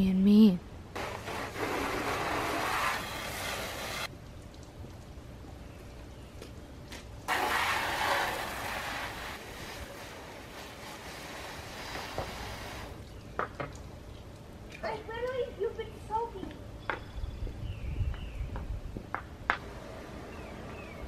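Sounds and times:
water spraying from hose nozzle: 1.0 - 4.1, 7.3 - 13.2.

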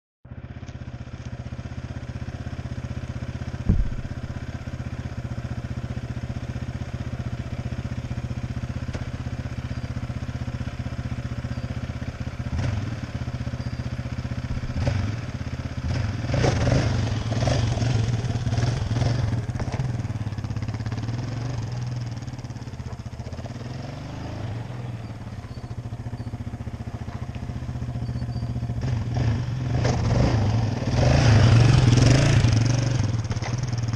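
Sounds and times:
atv engine idling and revving: 0.3 - 33.9
sharp engine knock: 3.6 - 4.4.

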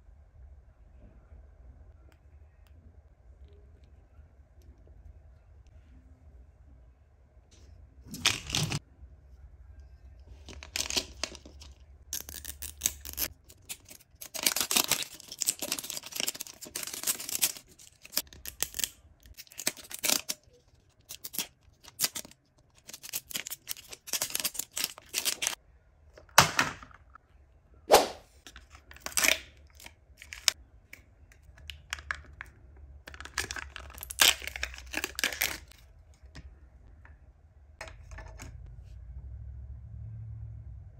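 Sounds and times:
plastic wrap tearing and crinkling: 12.2 - 25.6, 33.2 - 35.8.

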